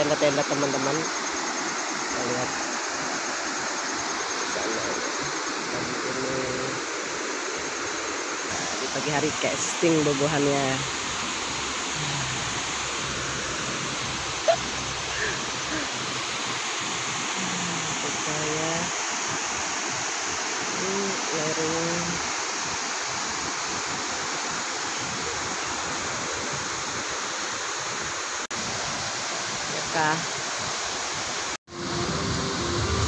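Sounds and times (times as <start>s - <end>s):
waterfall rushing: 0.0s - 33.0s
fast-flowing river: 10.9s - 18.8s.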